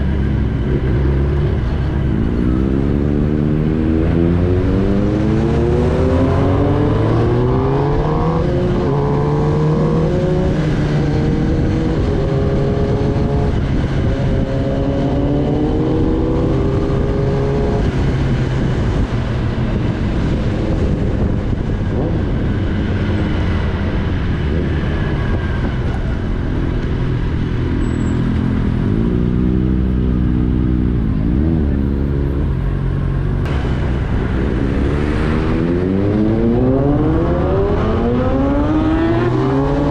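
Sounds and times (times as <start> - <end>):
motorcycle engine accelerating: 0.0 - 39.9.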